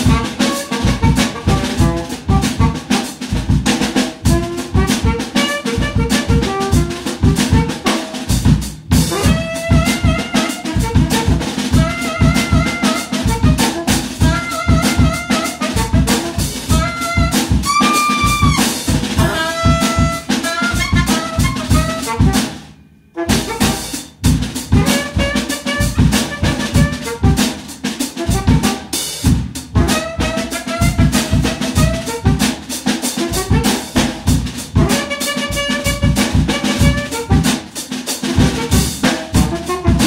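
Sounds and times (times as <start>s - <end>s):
up-tempo brass and drum music: 0.0s - 40.0s.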